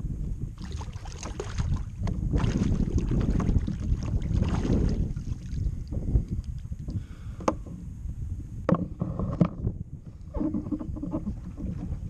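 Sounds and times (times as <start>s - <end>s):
wind buffeting microphone: 0.0s - 12.0s
water splashing: 0.6s - 5.7s.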